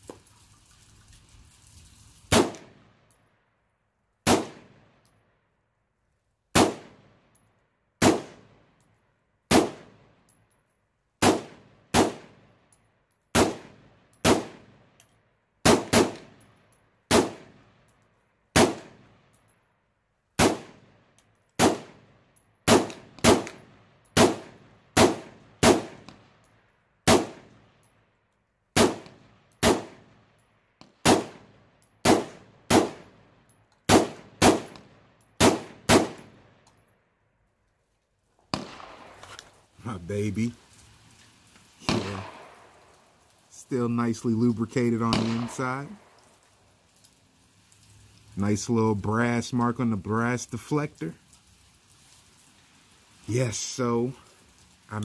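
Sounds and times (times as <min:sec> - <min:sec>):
gunshots: 0:02.3 - 0:02.8, 0:04.2 - 0:04.9, 0:06.6 - 0:07.1, 0:08.0 - 0:08.5, 0:09.5 - 0:10.0, 0:11.2 - 0:12.4, 0:13.4 - 0:14.8, 0:15.6 - 0:16.4, 0:17.1 - 0:17.6, 0:18.6 - 0:19.0, 0:20.4 - 0:21.0, 0:21.6 - 0:22.1, 0:22.7 - 0:26.2, 0:27.0 - 0:27.5, 0:28.8 - 0:30.1, 0:30.8 - 0:33.1, 0:33.9 - 0:36.4, 0:38.5 - 0:39.3, 0:41.8 - 0:42.9, 0:45.0 - 0:46.2.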